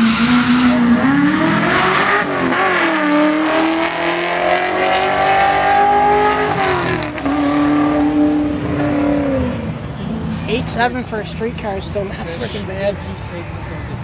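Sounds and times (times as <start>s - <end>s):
car engine accelerating hard: 0.0s - 10.6s.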